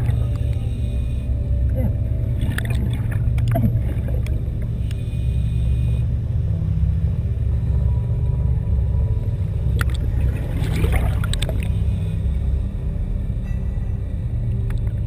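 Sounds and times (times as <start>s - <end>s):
bubbling and crackling: 0.0s - 0.9s, 1.7s - 6.2s, 8.0s - 12.6s
muffled underwater rumble: 0.0s - 15.0s.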